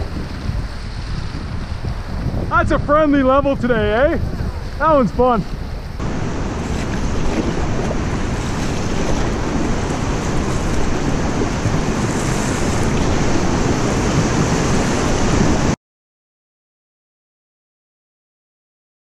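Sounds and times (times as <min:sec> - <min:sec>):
wind rumbling on microphone: 0:00.0 - 0:15.8
rushing river rapids: 0:04.2 - 0:15.8.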